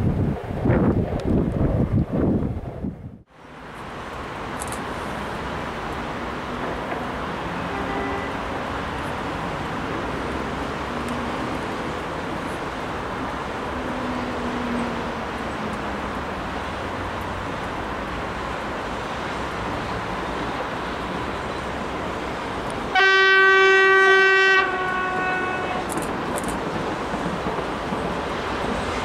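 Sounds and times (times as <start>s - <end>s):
road traffic noise: 3.3s - 29.0s
train horn blast: 7.6s - 8.5s, 22.9s - 26.0s.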